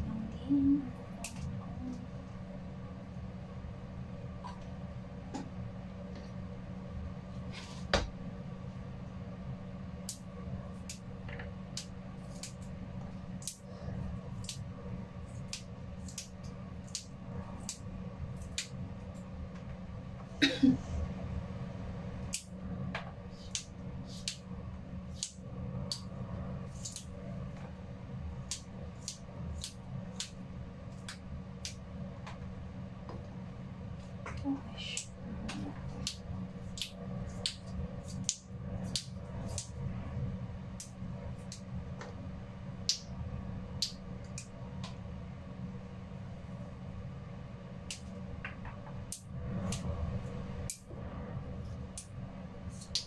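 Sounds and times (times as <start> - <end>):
steady low hum: 0.0 - 53.0
beans snapping by hand: 10.0 - 13.7, 14.3 - 14.7, 15.3 - 18.8, 22.2 - 24.5, 25.1 - 26.1, 26.7 - 27.2, 28.4 - 32.4, 35.0 - 39.8, 40.8 - 41.7, 42.8 - 43.1, 43.7 - 45.0, 47.8 - 48.1.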